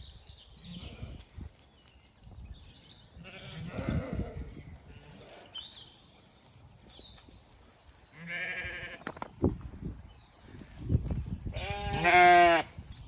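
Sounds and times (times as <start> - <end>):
sheep bleating: 3.2 - 5.6, 8.1 - 9.0, 11.6 - 12.7.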